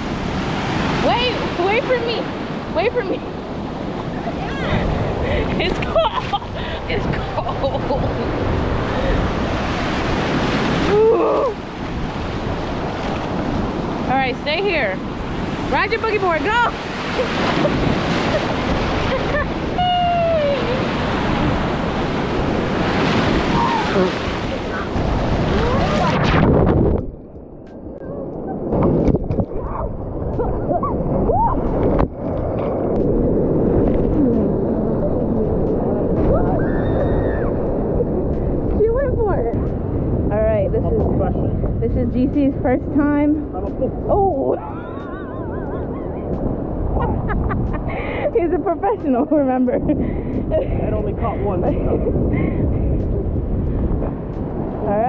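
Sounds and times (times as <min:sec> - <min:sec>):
ocean surf breaking: 0:00.0 - 0:55.0
water washing over microphone: 0:16.6 - 0:27.1.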